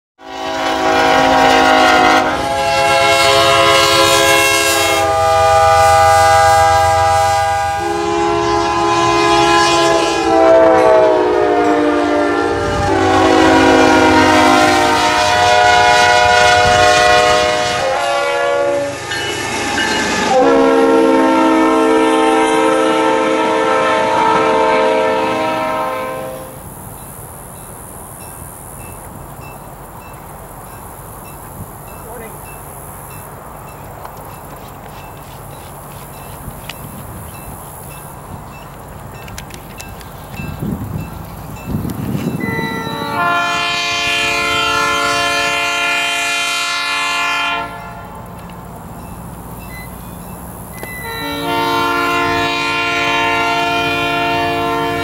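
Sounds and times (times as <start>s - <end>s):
locomotive air horn blasts: 0.2s - 26.6s, 42.4s - 48.3s, 50.8s - 55.0s.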